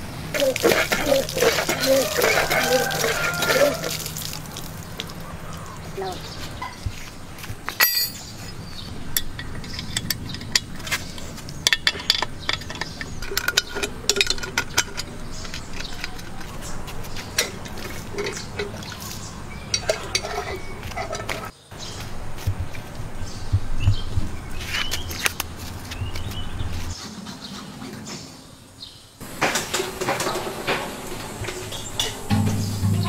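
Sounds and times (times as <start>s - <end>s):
spanners clinking on metal bolts: 7.7s - 16.7s, 17.3s - 21.5s.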